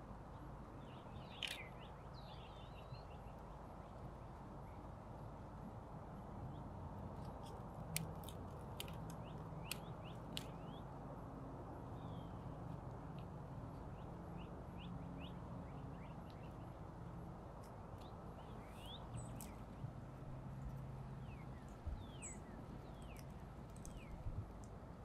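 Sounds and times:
birds chirping: 18.0s - 19.9s, 21.1s - 24.2s.

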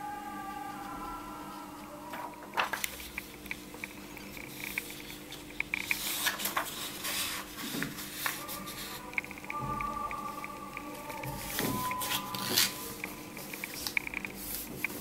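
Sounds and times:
paper crackles: 2.0s - 15.0s
paper rustling and sliding: 2.1s - 9.2s, 11.2s - 15.0s.

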